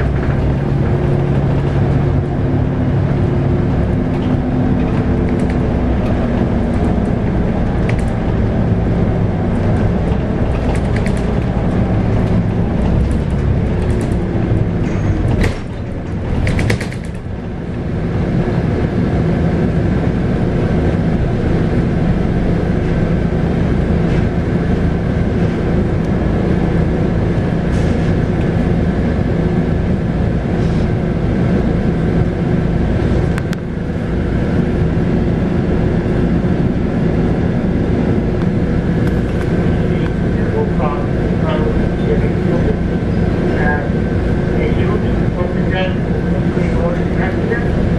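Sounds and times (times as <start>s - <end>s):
bus diesel engine drone: 0.0s - 47.9s
light rattles and clicks: 9.6s - 17.3s.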